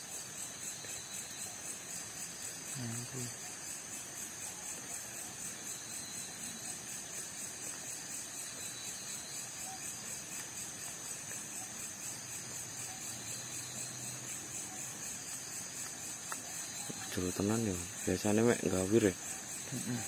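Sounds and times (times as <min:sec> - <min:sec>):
night insects trilling: 0:00.0 - 0:20.0.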